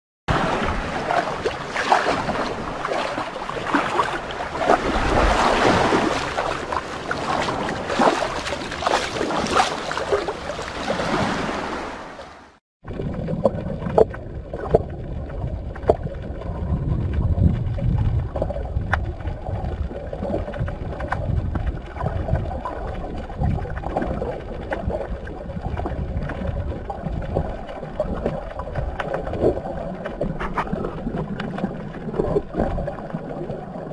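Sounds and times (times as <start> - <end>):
wind on microphone: 0.3 - 11.8, 12.9 - 33.6
water splashing in shallows: 0.3 - 33.9
muffled underwater rumble: 12.8 - 33.9
underwater clicks: 13.0 - 33.9.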